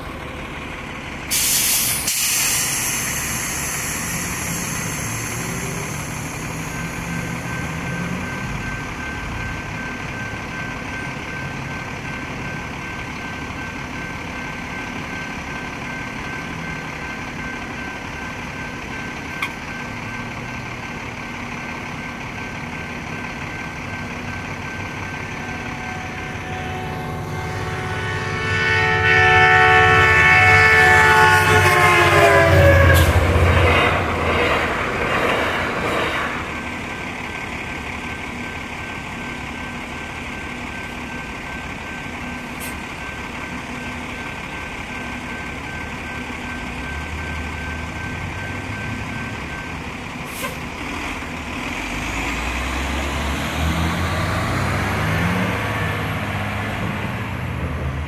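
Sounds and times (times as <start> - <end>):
bus engine idling: 0.0 - 53.0
train rumbling through crossing: 0.0 - 58.0
crossing bell ringing: 2.9 - 50.2
train horn blast: 25.8 - 33.6.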